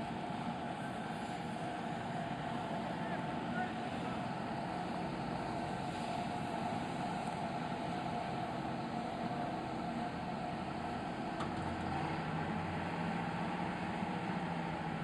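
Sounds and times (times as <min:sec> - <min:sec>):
crane engine running: 0:00.0 - 0:15.0.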